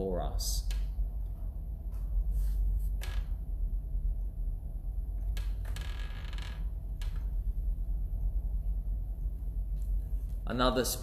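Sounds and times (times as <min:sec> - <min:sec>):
steady low rumble: 0:00.0 - 0:11.0
creaking rustle: 0:02.3 - 0:03.5, 0:05.2 - 0:07.4.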